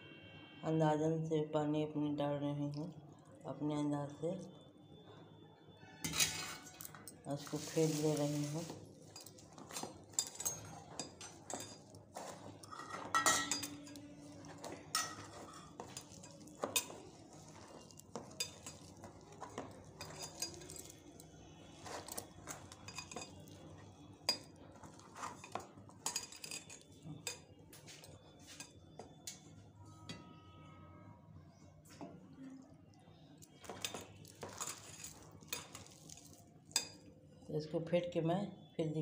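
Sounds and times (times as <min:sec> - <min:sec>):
batter beaten in a metal bowl: 0:06.2 - 0:29.4, 0:33.4 - 0:37.1.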